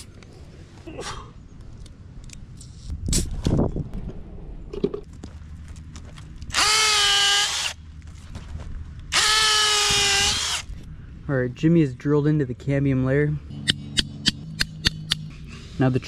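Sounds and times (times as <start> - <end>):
cordless drill motor whine: 6.5 - 7.8, 9.1 - 10.8.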